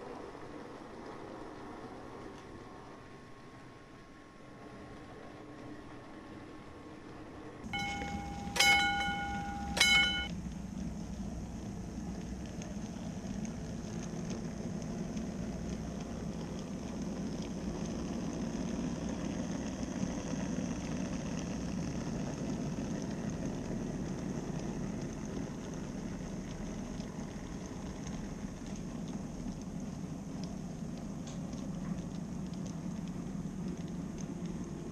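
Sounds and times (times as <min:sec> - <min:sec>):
model trains rumbling on track: 0:04.3 - 0:34.9
faint high whine: 0:06.7 - 0:12.2.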